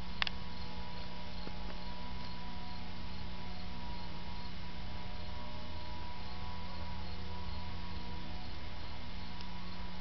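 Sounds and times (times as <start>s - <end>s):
faint constant tones: 0.0s - 10.0s
steady hum and hiss: 0.0s - 10.0s.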